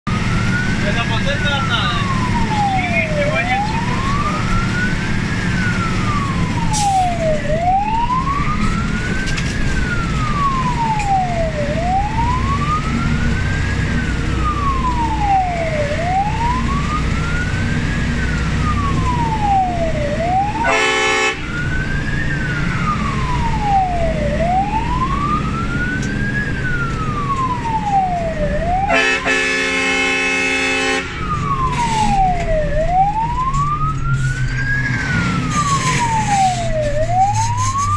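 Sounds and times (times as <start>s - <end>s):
truck engine and road noise: 0.0s - 37.9s
fire engine siren wailing: 0.1s - 37.9s
horn blast: 20.6s - 21.4s, 28.9s - 31.2s.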